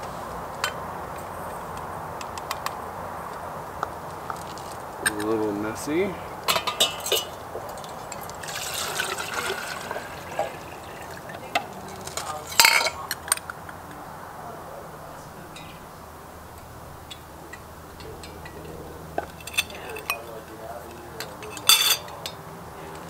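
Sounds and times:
water pouring into a pot: 6.5s - 12.9s
metal parts knocking: 17.1s - 22.4s
sharp metal clink: 17.1s - 22.4s.

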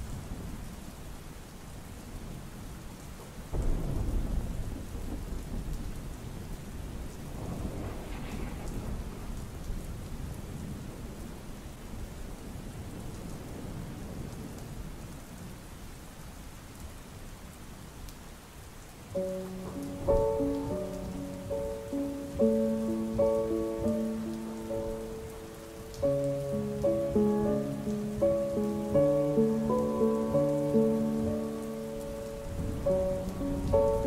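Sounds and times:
steady rain: 0.0s - 34.0s
deep rumble of thunder: 3.5s - 15.6s, 19.2s - 34.0s.

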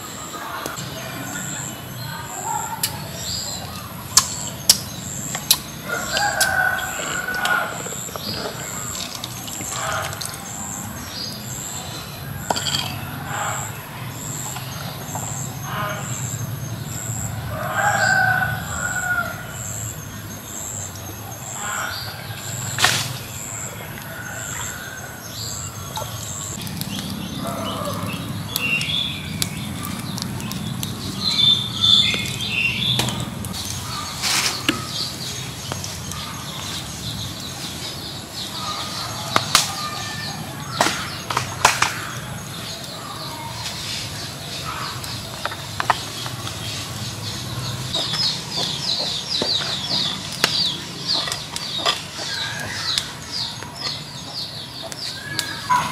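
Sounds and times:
chickens clucking: 0.0s - 16.3s, 29.3s - 55.9s
birds chirping: 0.0s - 55.9s.

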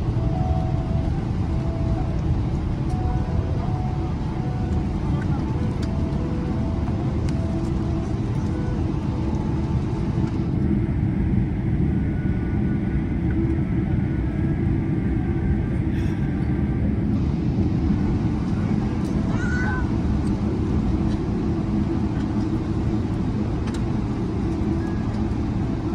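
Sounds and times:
aircraft engines and wheels rumbling: 0.0s - 25.9s.

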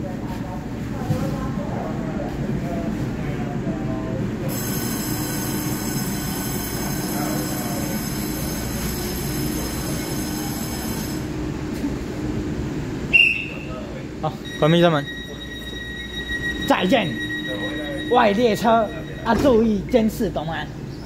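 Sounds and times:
high-pitched brake squeal: 4.5s - 11.2s, 14.4s - 19.9s.

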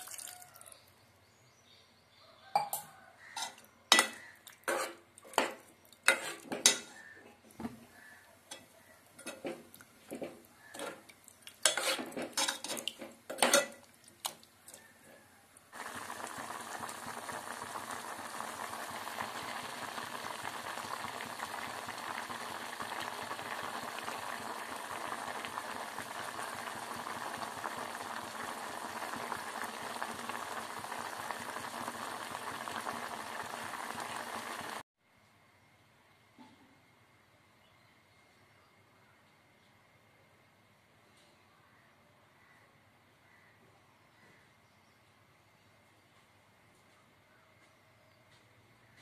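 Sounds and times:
spoon knocking against pot: 2.6s - 7.0s
curry boiling: 3.2s - 34.8s
spoon scraping a metal pot: 3.4s - 7.2s, 8.5s - 13.8s.

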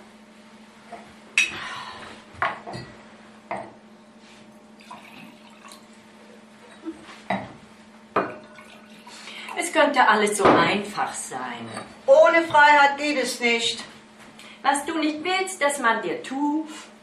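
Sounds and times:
wine pouring into a glass: 4.8s - 6.0s, 8.2s - 9.6s.

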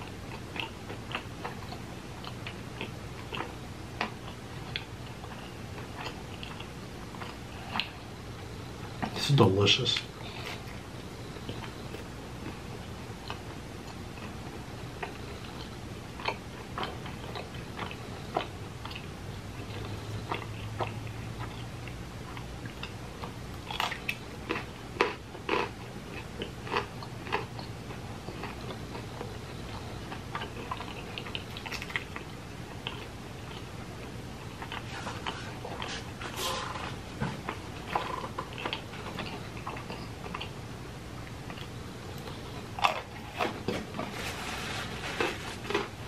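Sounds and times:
faint low hum: 0.0s - 46.0s
person chewing pizza: 0.0s - 46.0s.

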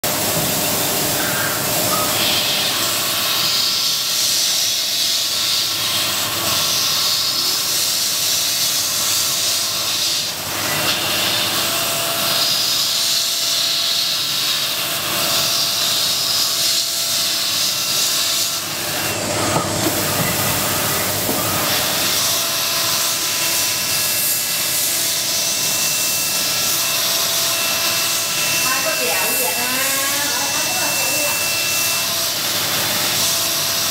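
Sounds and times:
milling spindle cutting plastic: 14.5s - 33.7s.

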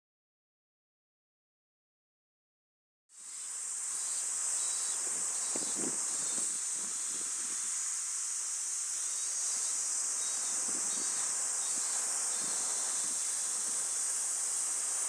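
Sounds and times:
insects buzzing: 3.1s - 15.0s.

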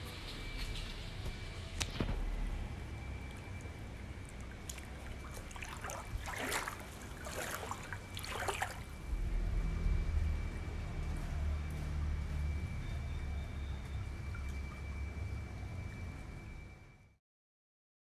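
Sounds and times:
pool water lapping: 2.2s - 17.0s
small water splashes: 3.2s - 9.1s.

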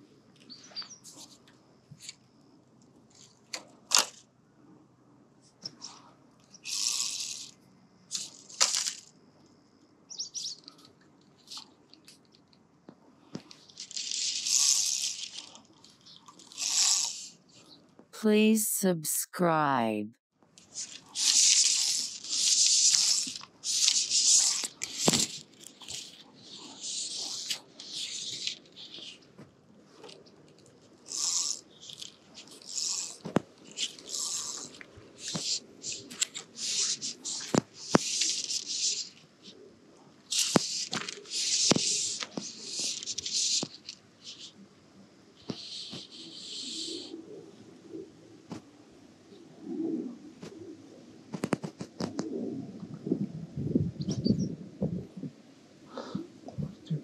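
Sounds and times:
fly line swishing: 13.7s - 15.6s, 20.7s - 29.1s.

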